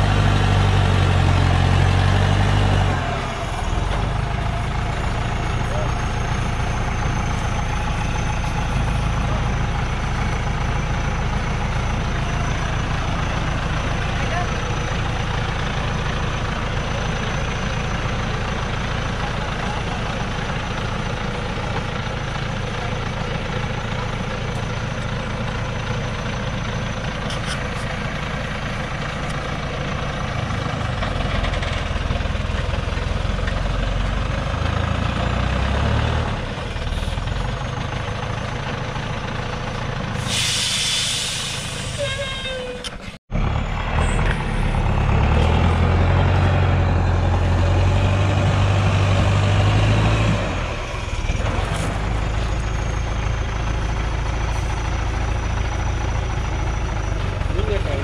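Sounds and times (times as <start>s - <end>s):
truck diesel engine straining: 0.0s - 58.0s
air-brake hiss: 40.2s - 42.9s.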